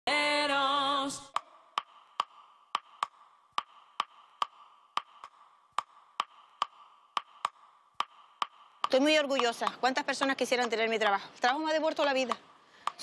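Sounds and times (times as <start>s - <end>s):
sharp ticks: 1.3s - 11.1s.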